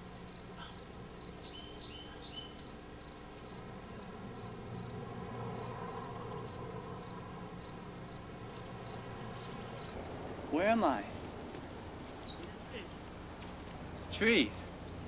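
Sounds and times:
cricket chirping: 0.0s - 15.0s.

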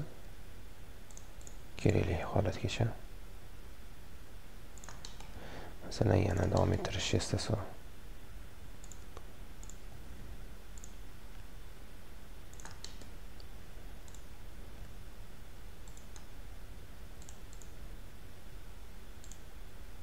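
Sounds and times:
steady low hum: 0.0s - 20.0s
computer mouse clicks: 1.1s - 1.6s, 4.8s - 5.4s, 6.2s - 7.0s, 8.8s - 9.8s, 10.8s - 11.0s, 12.5s - 14.3s, 15.8s - 16.3s, 17.2s - 17.8s, 19.2s - 19.5s.

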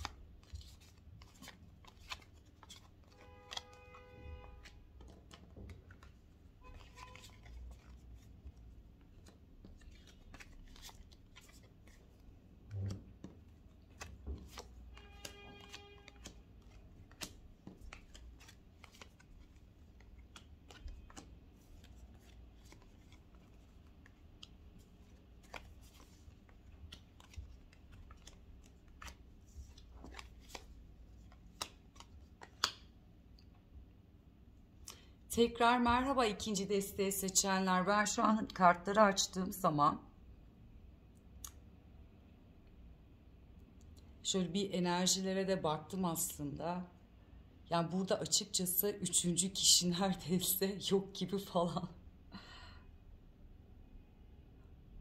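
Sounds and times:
cards shuffling clicks and flicks: 0.0s - 3.8s, 4.6s - 33.0s.

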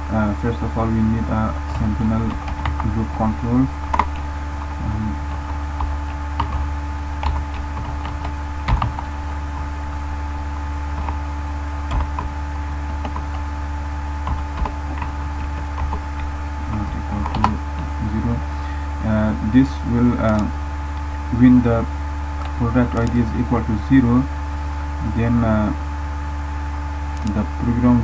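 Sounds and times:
electrical hum: 0.0s - 28.0s
keyboard keys clicking: 1.7s - 11.2s, 11.8s - 13.6s, 14.2s - 18.2s.

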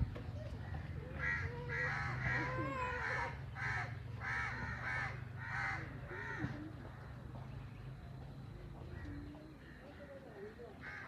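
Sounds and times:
crows cawing: 0.7s - 7.2s, 8.9s - 11.0s.

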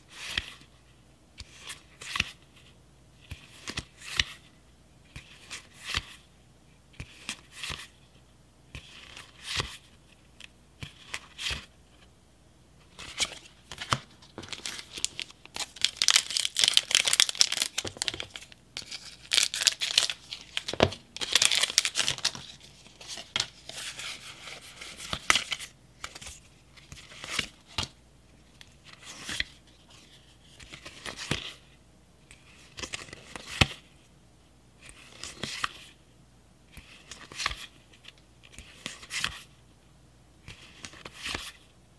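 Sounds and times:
foil wrapper crinkling and tearing: 14.5s - 22.4s.

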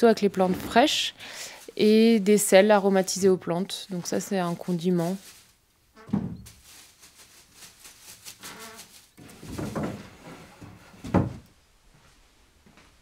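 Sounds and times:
dried petals rustling: 0.3s - 3.1s, 3.9s - 5.7s, 6.4s - 9.8s
wooden trays scraping: 8.5s - 11.5s.

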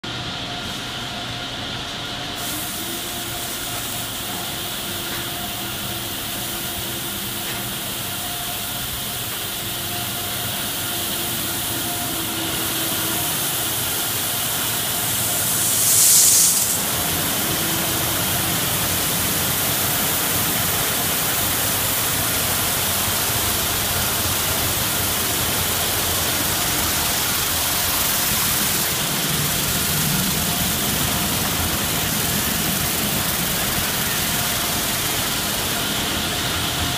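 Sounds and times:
faint machine hum: 0.0s - 36.9s
high-pressure spray hiss: 2.3s - 36.9s
water spraying over car: 12.4s - 36.7s.

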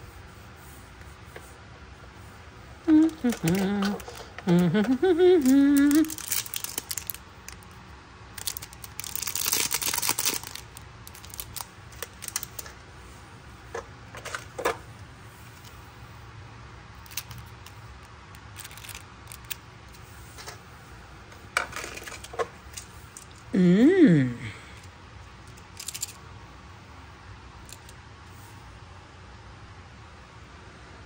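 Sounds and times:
plastic wrapper crinkling: 2.9s - 12.8s, 17.0s - 19.6s, 25.5s - 26.2s
plastic pieces clicking and tapping: 3.0s - 7.8s, 17.0s - 19.6s, 21.6s - 23.4s, 25.5s - 26.2s.

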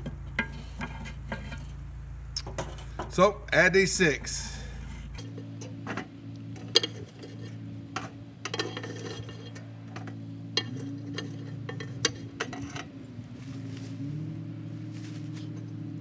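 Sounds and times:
charcoal briquettes dropping: 0.0s - 3.3s, 4.2s - 12.9s
steady low hum: 0.0s - 16.0s
metal tongs clinking on grate: 6.6s - 13.0s.

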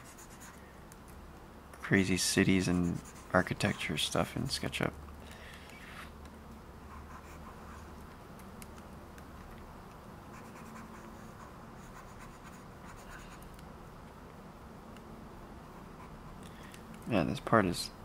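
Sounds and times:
stylus scratching on tablet: 0.0s - 0.6s, 2.4s - 4.3s, 6.8s - 8.7s, 10.2s - 13.6s, 15.6s - 16.4s.

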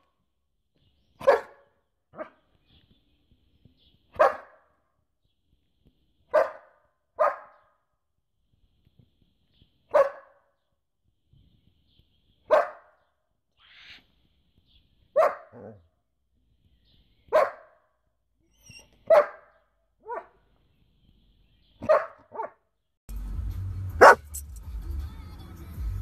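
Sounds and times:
dog barking: 1.2s - 2.4s, 4.1s - 4.7s, 6.3s - 7.7s, 9.9s - 10.4s, 12.5s - 13.0s, 15.1s - 15.9s, 17.3s - 17.9s, 19.0s - 20.4s, 21.8s - 22.6s, 24.0s - 24.4s.

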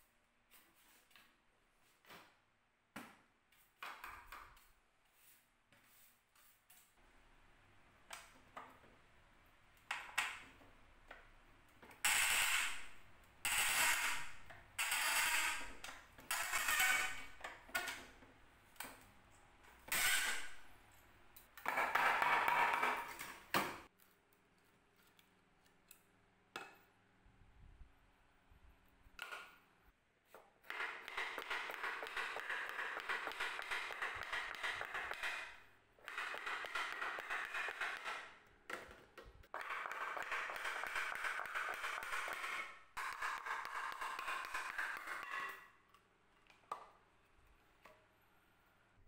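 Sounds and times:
nails creaking out of wood: 12.0s - 18.0s, 19.8s - 20.6s.

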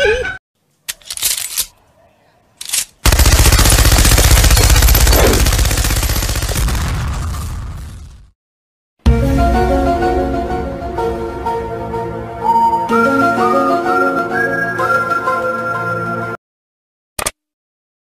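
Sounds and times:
machine-gun bursts: 2.6s - 6.8s.

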